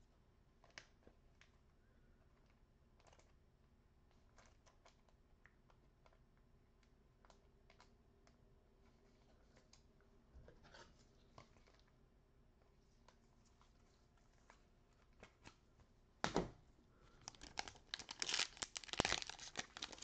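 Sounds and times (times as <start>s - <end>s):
soft rustle: 12.6s - 16.0s.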